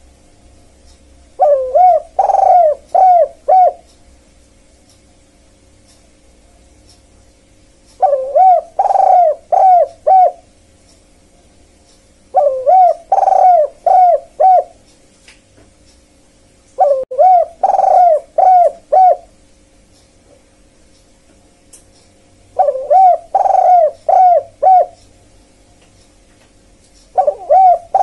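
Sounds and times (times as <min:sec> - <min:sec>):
faint steady hum: 0:00.0 - 0:28.0
dove cooing: 0:01.4 - 0:03.9, 0:08.0 - 0:10.5, 0:12.3 - 0:14.8, 0:16.8 - 0:19.4, 0:22.6 - 0:25.0, 0:27.1 - 0:28.0.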